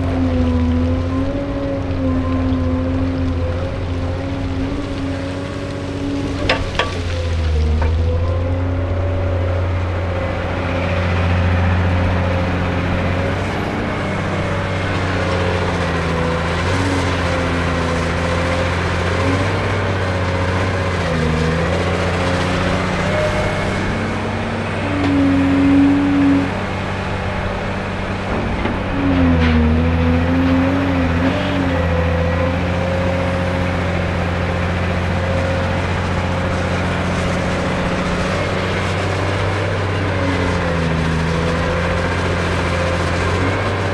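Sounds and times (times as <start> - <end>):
excavator diesel engine under load: 0.0 - 43.9.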